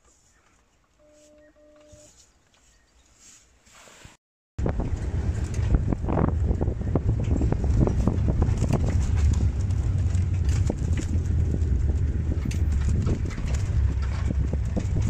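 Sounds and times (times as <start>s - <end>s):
knocks and rattles: 4.6s - 15.0s
vehicle rumbling on dirt track: 4.6s - 15.0s.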